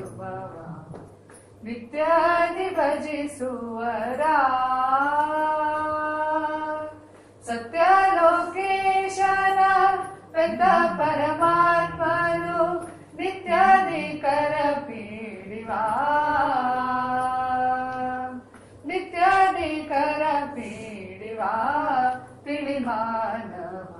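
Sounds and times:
high voice singing: 10.4 - 18.0.

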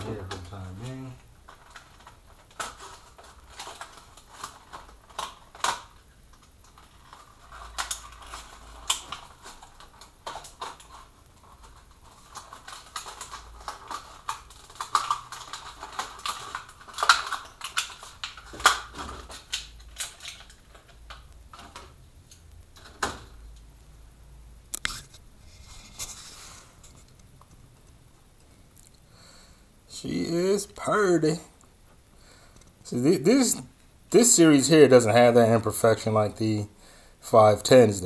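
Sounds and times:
packaging crinkling: 0.1 - 23.4.

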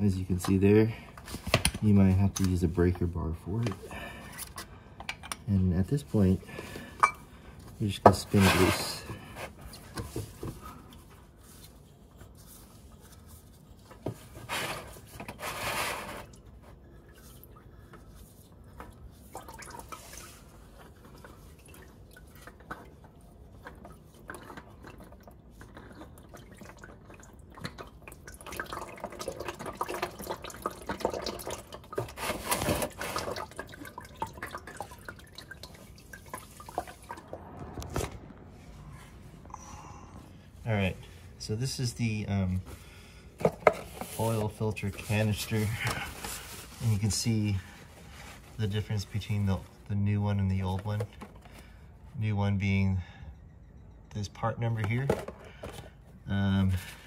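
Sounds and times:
oil dripping and trickling: 0.0 - 15.4, 16.1 - 37.7, 38.9 - 52.2
handling and scraping noises: 0.0 - 28.0, 29.5 - 52.3, 54.2 - 57.0.

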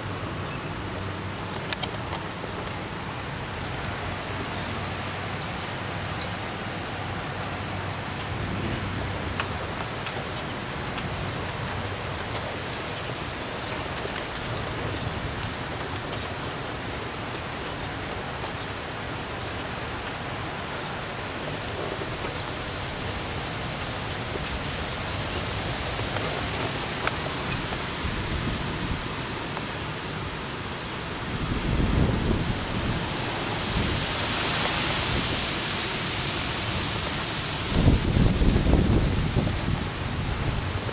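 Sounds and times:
steady rain hiss: 0.0 - 40.9
sharp raindrop clicks: 0.1 - 5.4, 6.0 - 30.4.

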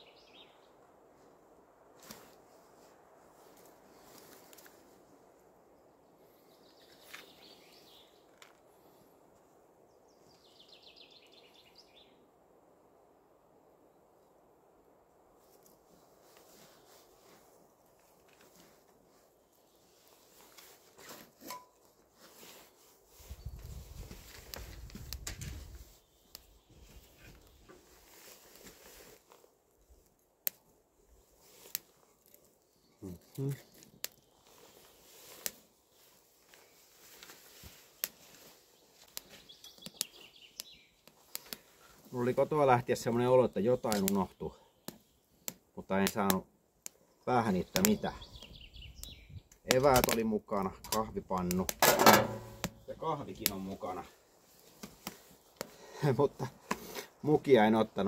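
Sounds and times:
songbird calls and trill: 0.0 - 0.8, 5.8 - 8.5, 9.9 - 12.3, 38.7 - 41.1, 47.1 - 49.7
wooden kindling clicks: 43.9 - 44.2.

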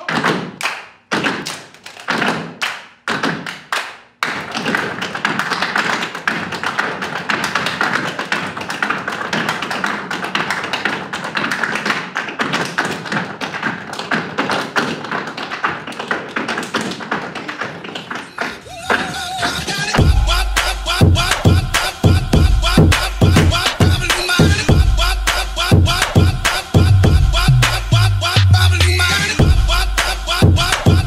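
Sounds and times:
feet tapping on stage floor: 4.3 - 19.1.

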